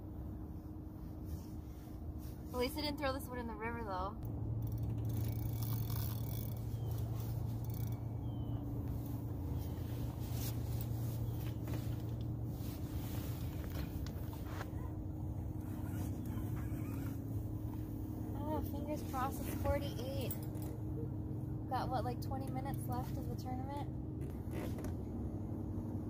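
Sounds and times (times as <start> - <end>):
low mechanical hum: 0.0 - 26.0.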